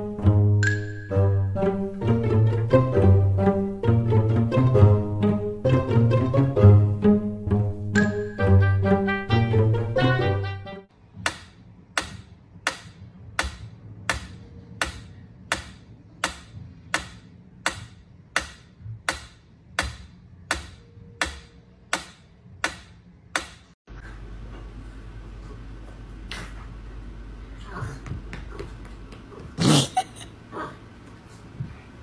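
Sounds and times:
metronome ticking: 0:07.9 - 0:08.8.

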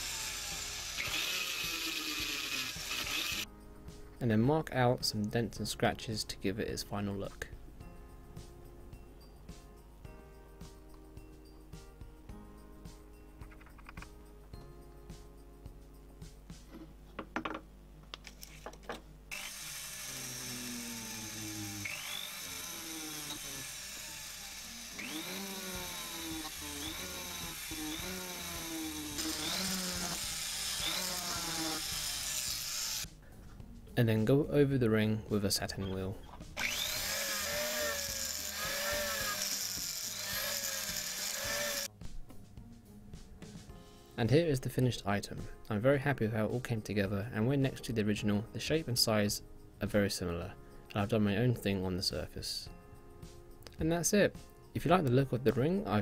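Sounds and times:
rotary tool cutting metal: 0:00.0 - 0:03.5, 0:19.3 - 0:33.1, 0:36.6 - 0:41.9.

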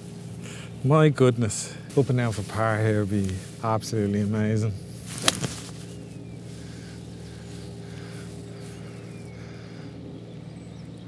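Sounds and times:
steady low hum: 0:00.0 - 0:11.0
golf club striking ball: 0:05.1 - 0:06.0.

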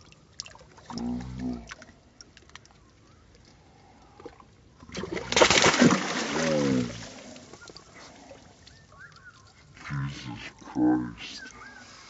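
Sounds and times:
fish splashing in water: 0:04.9 - 0:09.4.

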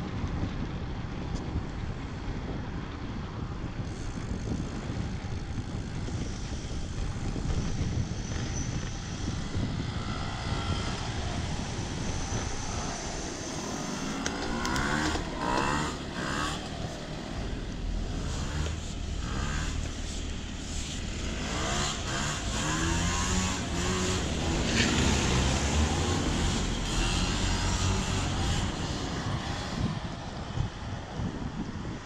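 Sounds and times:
wind rush on microphone: 0:00.0 - 0:32.0
vehicle passing: 0:09.7 - 0:30.2.

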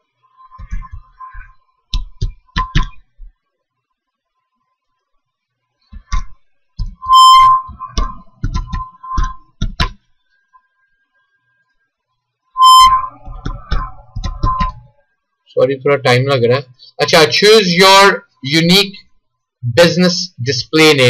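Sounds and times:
high buzzing beep: 0:02.4 - 0:03.0, 0:07.0 - 0:09.5, 0:12.6 - 0:15.0.

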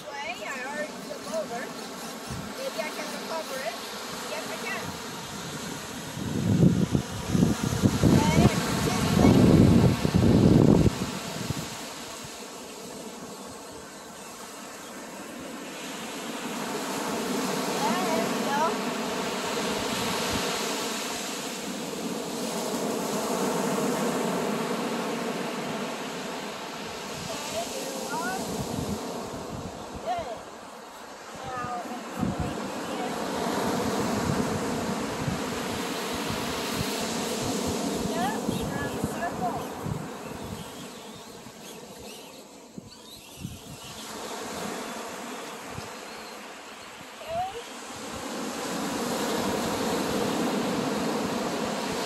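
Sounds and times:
small electric motor whining: 0:37.3 - 0:47.8.

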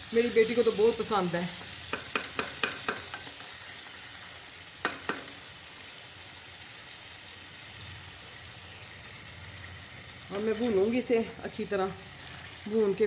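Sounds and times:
potatoes sizzling in oil: 0:00.0 - 0:13.0
knocks on metal pot: 0:01.9 - 0:03.2, 0:04.8 - 0:05.3.

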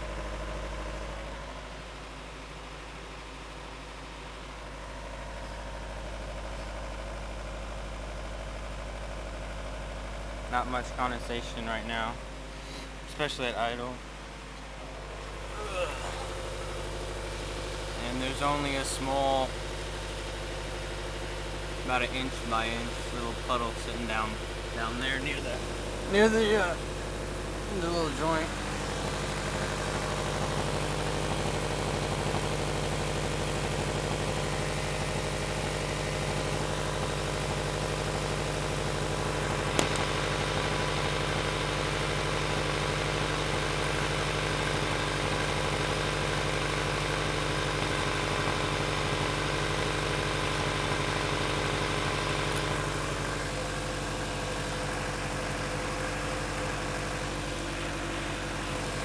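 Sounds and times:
car engine idling: 0:00.0 - 0:59.0
sharp click: 0:39.7 - 0:40.1.

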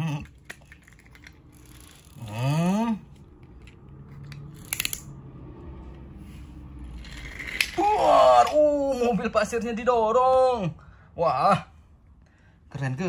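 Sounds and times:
toy car whirring and clicking: 0:00.0 - 0:05.2, 0:05.9 - 0:08.6
person humming engine noise: 0:01.6 - 0:03.7.

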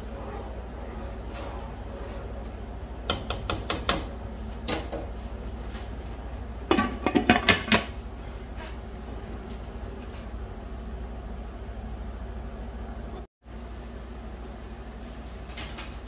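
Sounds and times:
glass lid clattering on wok: 0:06.7 - 0:07.9.

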